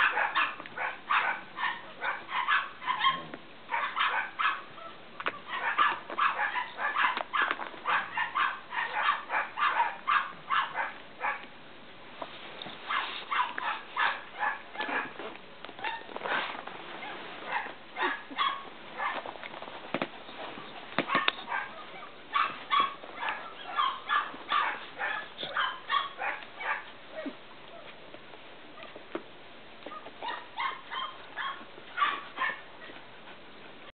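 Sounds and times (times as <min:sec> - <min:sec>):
dogs yipping and barking: 0:00.0 - 0:11.5, 0:12.8 - 0:15.2, 0:15.8 - 0:19.3, 0:20.4 - 0:28.0, 0:29.8 - 0:33.2.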